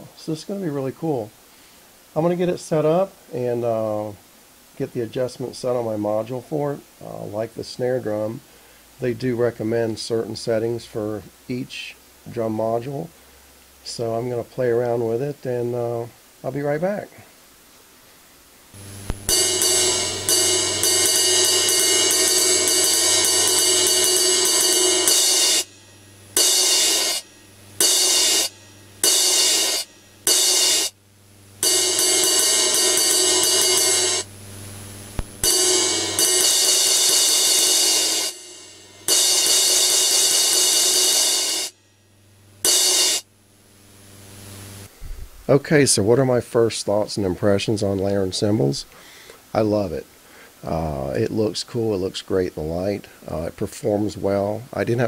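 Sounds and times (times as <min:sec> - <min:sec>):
electronic crash cymbal: 0:18.7 - 0:31.0, 0:31.6 - 0:34.4, 0:35.1 - 0:43.3.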